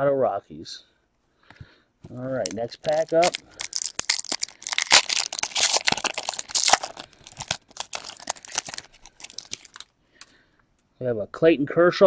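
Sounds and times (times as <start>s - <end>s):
foil wrapper tearing and crinkling: 2.5s - 9.9s.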